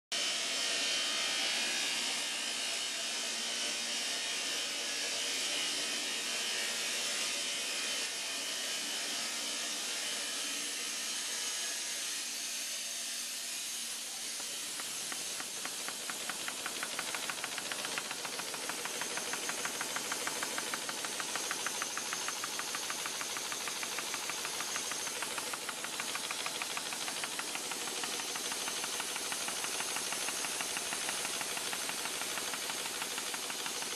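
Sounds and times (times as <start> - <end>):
fast mechanical clatter: 14.0 - 33.9.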